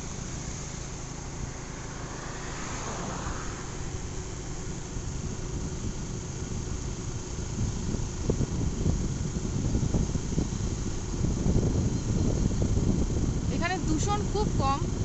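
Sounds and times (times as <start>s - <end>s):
motorbike engine and road rumble: 0.0s - 15.0s
wind buffeting microphone: 3.3s - 15.0s.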